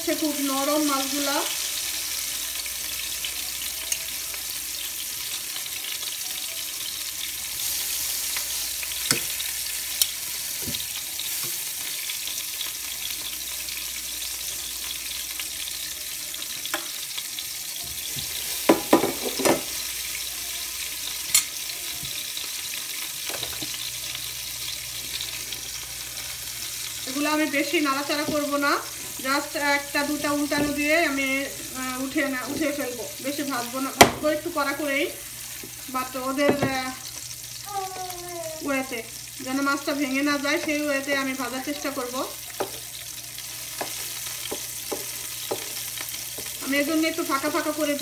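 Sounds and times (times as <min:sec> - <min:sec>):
fish sizzling in oil: 0:00.0 - 0:48.0
metal tongs clicking on pan: 0:10.0 - 0:10.2, 0:21.3 - 0:21.6.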